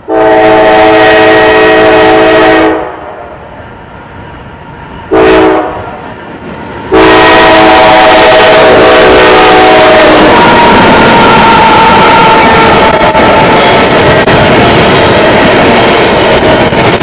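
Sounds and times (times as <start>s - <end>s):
locomotive air horn blasts: 0.0s - 3.2s, 5.1s - 6.0s, 6.9s - 12.4s
train rumble: 0.0s - 17.0s.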